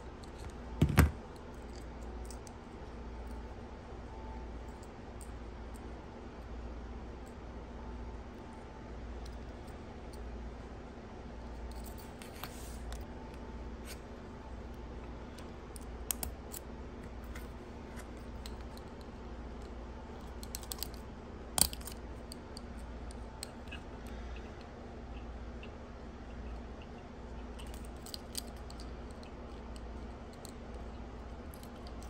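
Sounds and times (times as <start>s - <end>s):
steady low hum: 0.0s - 32.0s
light clicks of earring hooks: 15.4s - 16.7s, 18.2s - 21.0s.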